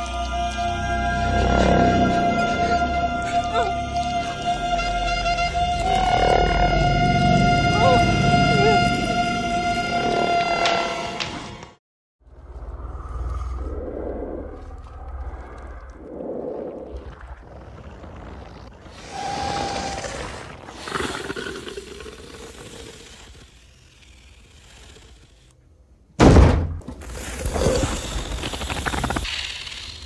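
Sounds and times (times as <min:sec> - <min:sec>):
creature hissing: 0:18.9 - 0:25.5, 0:27.1 - 0:30.0.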